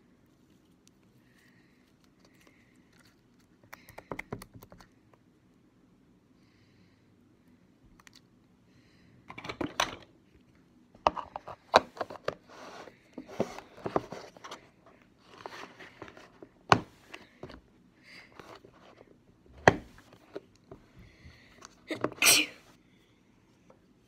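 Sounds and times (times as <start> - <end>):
scraping and rustling: 11.1 - 17.6.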